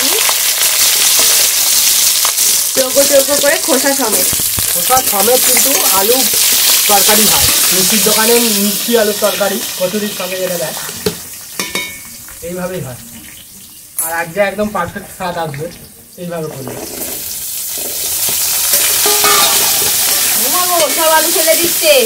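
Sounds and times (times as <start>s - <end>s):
potatoes sizzling in oil: 0.0s - 14.6s, 16.1s - 22.0s
metal spatula stirring: 17.7s - 21.5s.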